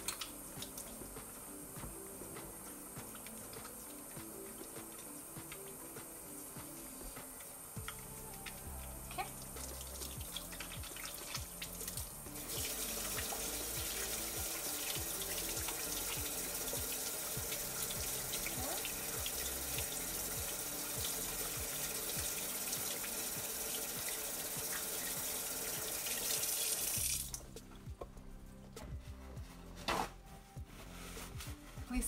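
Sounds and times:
faucet running into sink: 7.8s - 27.4s
hands rubbed under water: 29.2s - 31.8s.

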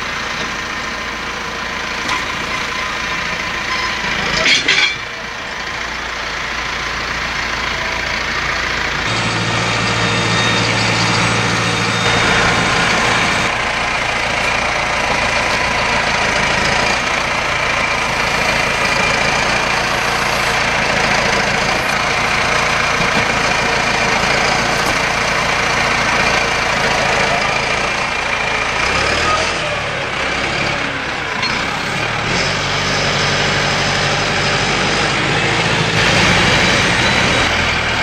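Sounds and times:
tractor diesel engine under load: 0.0s - 38.0s.

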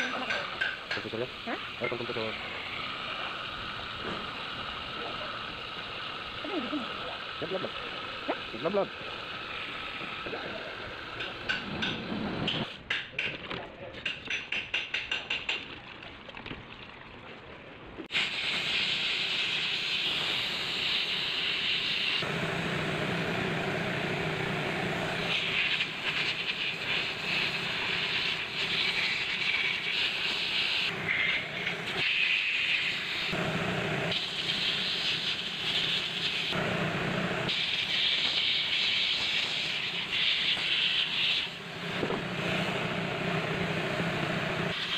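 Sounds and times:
hissing hose jet: 18.1s - 44.9s.

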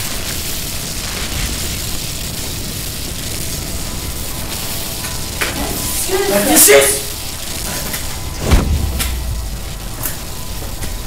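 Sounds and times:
rushing rumbling roar: 8.0s - 11.0s
deep low rumble: 8.2s - 11.0s.

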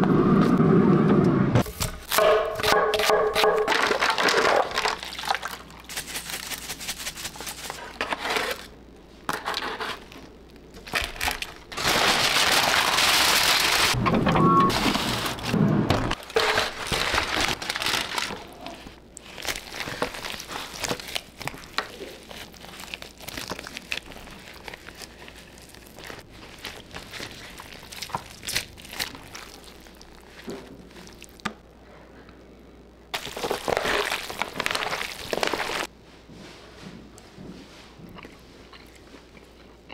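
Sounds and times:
foil crinkling and rustling: 3.8s - 8.7s, 10.8s - 14.0s, 14.7s - 31.4s, 33.2s - 35.9s.

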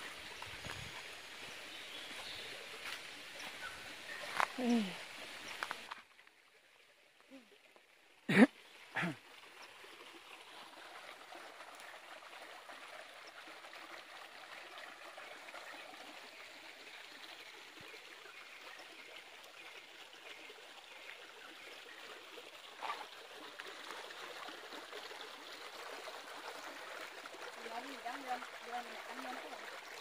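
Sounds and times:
stream running over rocks: 0.0s - 30.0s.

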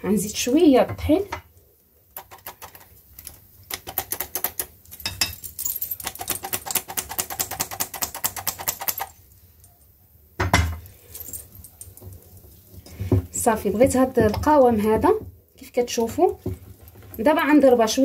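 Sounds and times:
flour sifter clicking rapidly: 2.2s - 2.9s.

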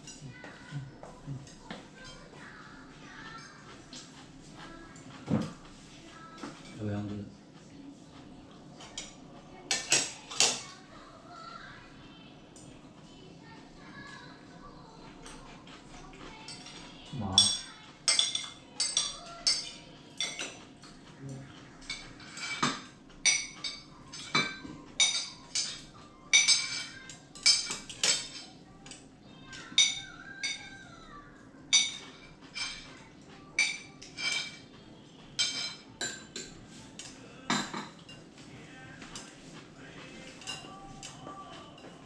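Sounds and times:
tableware clinking on ceramic: 16.5s - 20.6s, 21.8s - 28.5s, 31.8s - 32.9s, 33.6s - 34.6s, 35.4s - 38.2s.

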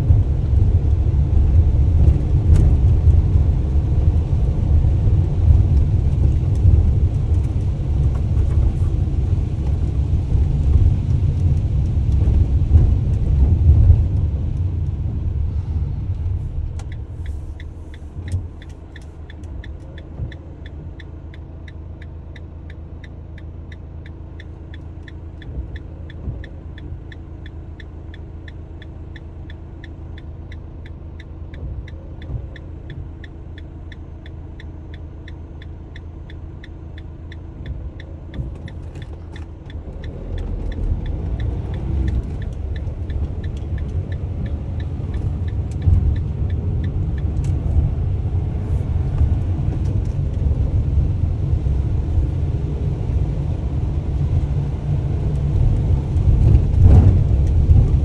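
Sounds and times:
engine rumble: 0.0s - 58.0s
indicator ticking: 16.8s - 47.9s.

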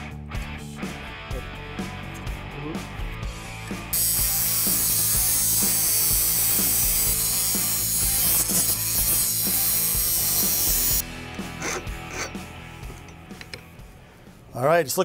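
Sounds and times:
angle grinder cutting metal: 3.9s - 11.0s.

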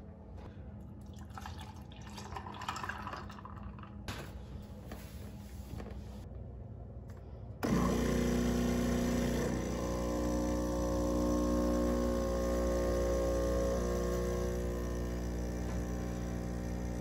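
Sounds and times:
espresso machine pump buzzing: 7.6s - 17.0s.

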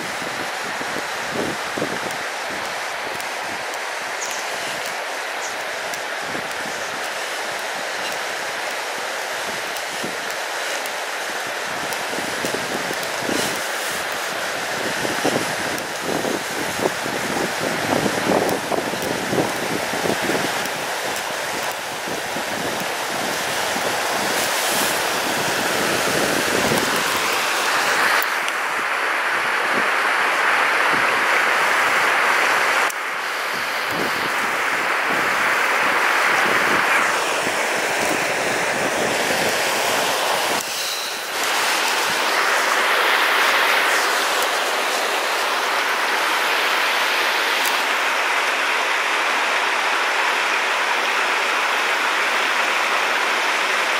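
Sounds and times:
river rapids rushing over boulders: 0.0s - 53.9s
wind buffeting microphone: 14.6s - 27.4s, 33.4s - 40.6s.

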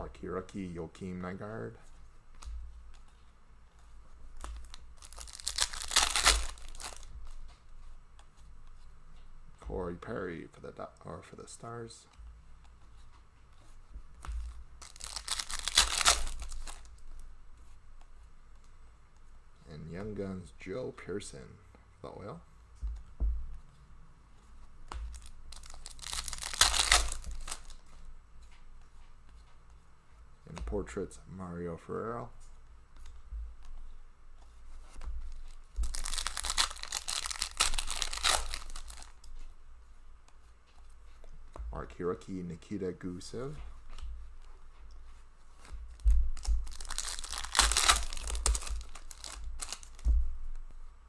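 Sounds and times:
foil wrapper tearing and crinkling: 4.4s - 7.1s, 14.8s - 17.0s, 25.1s - 27.8s, 35.4s - 39.3s, 46.4s - 50.1s.

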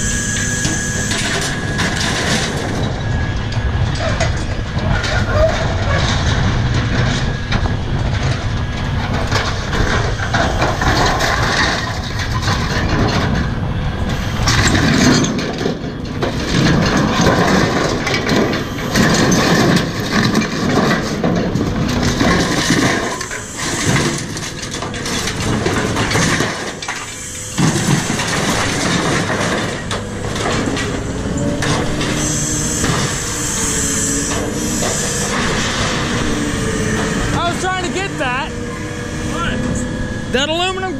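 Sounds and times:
scrap metal clattering and crashing: 0.0s - 3.2s, 3.8s - 38.5s
machine engine running: 0.0s - 40.9s.

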